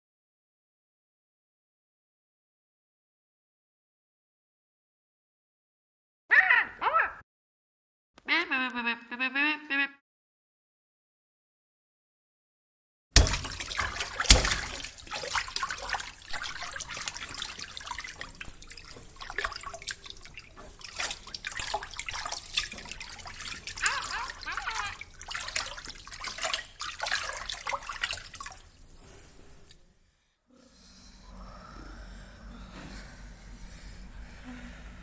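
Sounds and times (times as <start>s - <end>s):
water splash: 13.2s - 29.7s
water dripping and gurgling: 13.2s - 29.8s.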